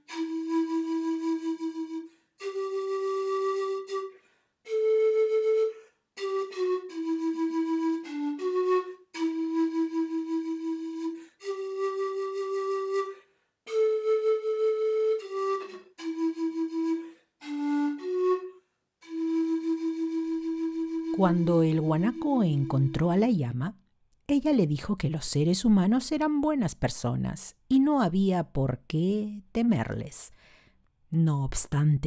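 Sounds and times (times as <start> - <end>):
slow solo flute melody: 0.0 - 23.2.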